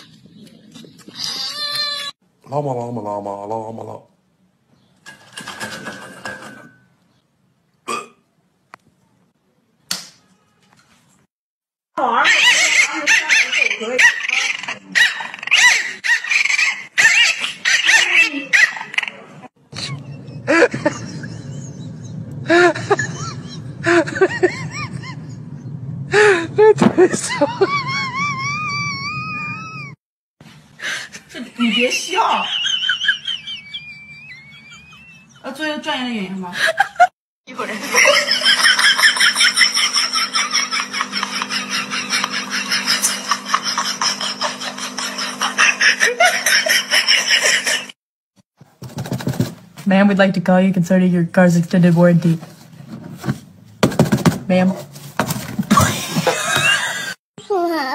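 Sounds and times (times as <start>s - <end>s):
small dog yelping and whining: 12.2s - 19.1s
person laughing hard: 19.8s - 21.8s, 22.4s - 25.4s, 26.1s - 29.9s, 36.6s - 48.0s, 55.7s - 57.2s.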